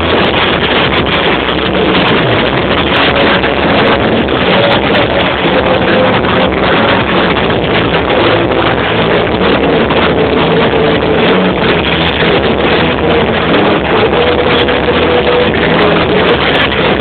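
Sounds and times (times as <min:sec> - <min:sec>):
distorted live rock band: 0:00.0 - 0:17.0.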